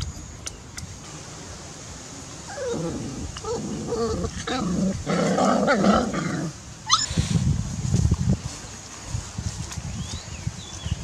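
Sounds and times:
puppies growling: 0:02.5 - 0:06.6.

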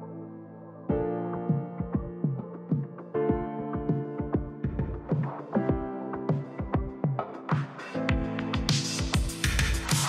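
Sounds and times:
electronic music: 0:00.0 - 0:10.0
deep kick drum beat: 0:01.8 - 0:02.4, 0:03.3 - 0:05.9, 0:08.1 - 0:10.0.

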